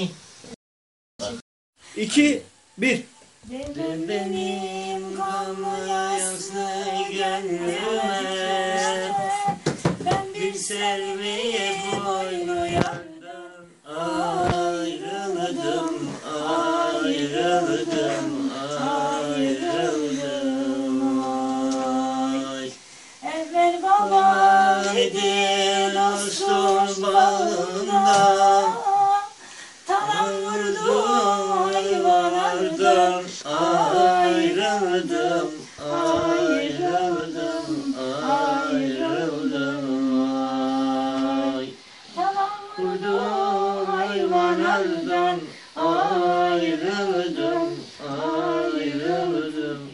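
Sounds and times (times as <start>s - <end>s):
man singing unaccompanied: 3.5s - 49.9s
singer breathing: 29.3s - 29.9s, 41.8s - 42.2s, 45.5s - 45.8s.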